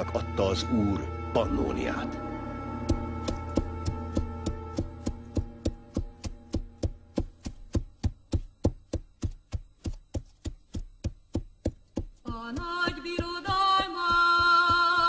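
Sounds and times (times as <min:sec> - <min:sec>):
held music chord: 0:00.0 - 0:07.1
horse hooves clip-clopping: 0:02.9 - 0:15.0.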